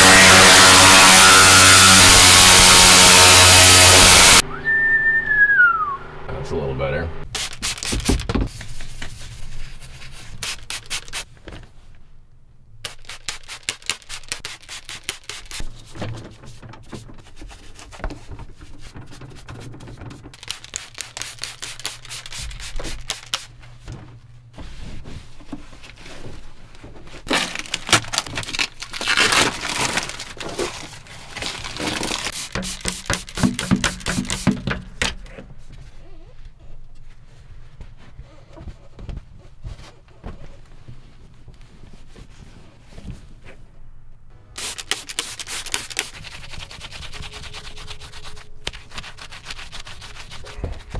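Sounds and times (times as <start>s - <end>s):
brush scrubbing plastic: 7.3s - 11.3s, 12.9s - 23.8s, 24.6s - 35.4s, 44.6s - 50.9s
trigger sprayer squirts: 44.6s - 46.2s.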